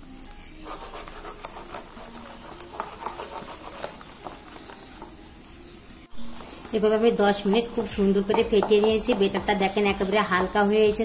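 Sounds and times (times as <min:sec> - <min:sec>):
batter beaten by hand: 0:07.2 - 0:09.9.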